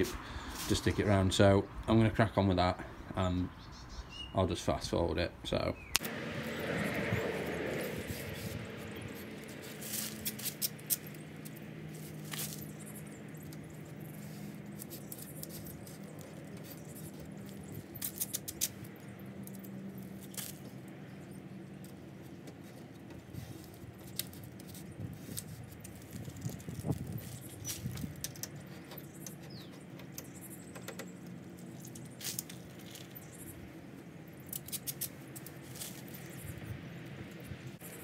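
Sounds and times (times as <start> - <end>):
clicks and rustles of handling: 9.4 - 36.4
small ticks: 9.5 - 20.8.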